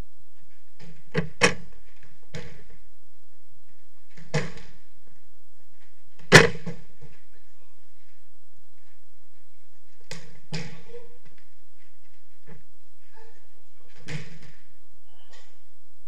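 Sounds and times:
football thuds against walls: 0:00.8 - 0:02.8, 0:04.0 - 0:04.8, 0:05.8 - 0:07.2, 0:10.0 - 0:11.4, 0:13.9 - 0:14.7.

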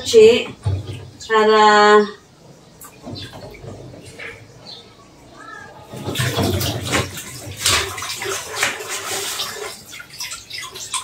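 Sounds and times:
water sloshing: 0:02.3 - 0:04.7, 0:05.7 - 0:11.0
tap water splashing into metal pot: 0:06.0 - 0:11.0.

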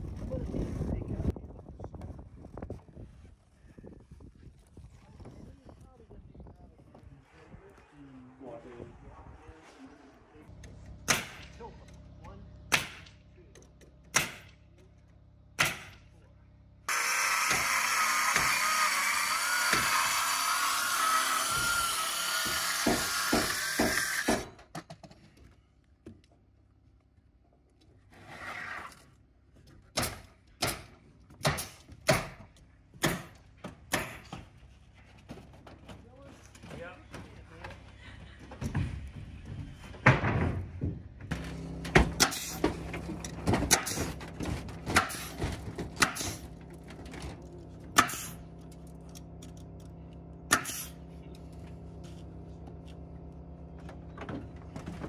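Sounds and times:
nail gun firing: 0:12.7 - 0:13.2, 0:14.1 - 0:14.6, 0:15.6 - 0:16.0, 0:16.9 - 0:20.0, 0:21.1 - 0:24.6, 0:42.2 - 0:42.6, 0:43.6 - 0:44.2, 0:44.9 - 0:45.4, 0:46.0 - 0:46.4, 0:48.0 - 0:48.4, 0:50.5 - 0:50.9
hammer nailing into wood: 0:14.1 - 0:14.5, 0:15.6 - 0:16.0, 0:22.4 - 0:24.7, 0:29.9 - 0:34.4, 0:44.8 - 0:45.4, 0:46.0 - 0:46.4, 0:48.0 - 0:48.4, 0:50.5 - 0:50.9.

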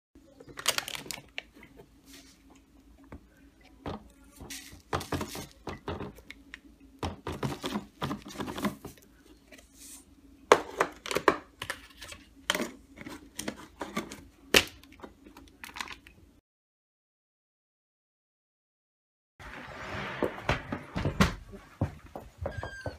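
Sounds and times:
faint steady hum: 0:00.2 - 0:16.4
foil seal crinkling and tearing: 0:00.5 - 0:01.6
handling rustles and knocks: 0:03.8 - 0:06.3.

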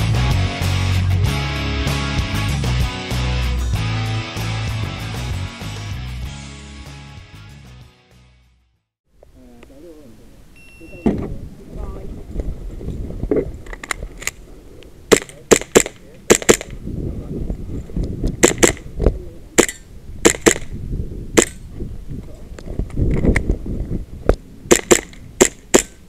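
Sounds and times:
airsoft pistol shots: 0:15.1 - 0:16.8, 0:18.4 - 0:18.8, 0:19.6 - 0:20.7, 0:21.4 - 0:21.6, 0:24.7 - 0:26.0.

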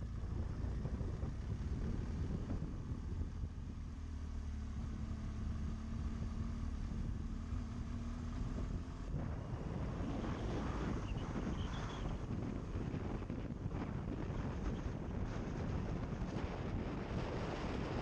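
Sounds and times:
wind noise on microphone: 0:00.0 - 0:03.7, 0:08.4 - 0:18.0
motorcycle engine running: 0:00.0 - 0:18.0.

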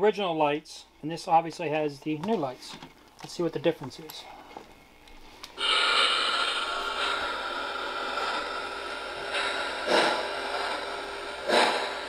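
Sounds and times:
model train whirring on track: 0:05.6 - 0:12.0.

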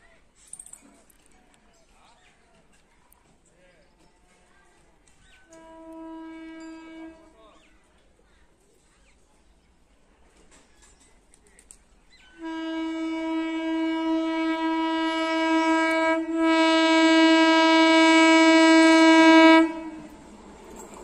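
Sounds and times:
train horn blasts: 0:05.5 - 0:07.4, 0:12.4 - 0:20.2.

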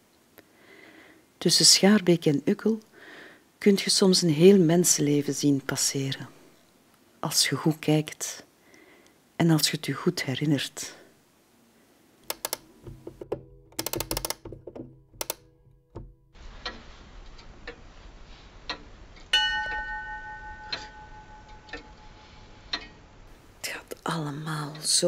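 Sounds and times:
sharp mechanical clicks and knocks: 0:12.2 - 0:16.8
bright ringing chime: 0:19.3 - 0:22.5.

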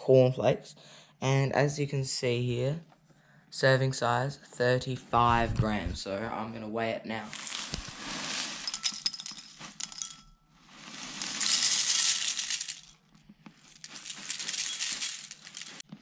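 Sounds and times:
cornflakes pouring into bowl: 0:07.3 - 0:13.0, 0:13.6 - 0:15.9.

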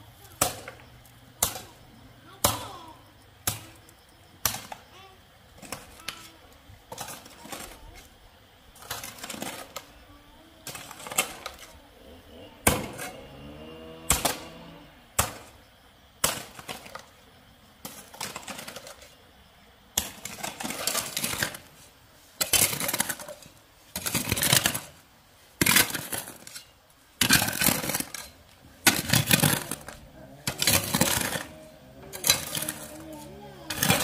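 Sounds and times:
small hard objects rattling: 0:22.4 - 0:25.0, 0:25.6 - 0:34.0.

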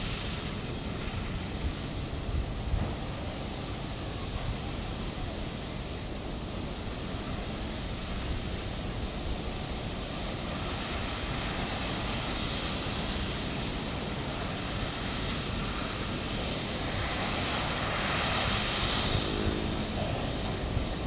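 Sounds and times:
low train rumble: 0:00.0 - 0:21.0.

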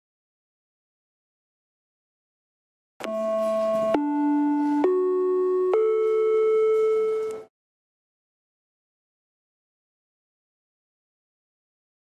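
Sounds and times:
four-note chime: 0:03.0 - 0:07.5.

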